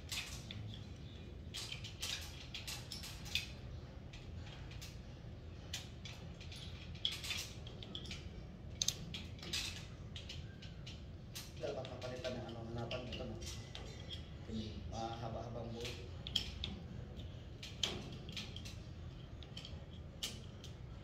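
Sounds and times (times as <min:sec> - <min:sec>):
metal chain clinking: 0:05.7 - 0:11.6.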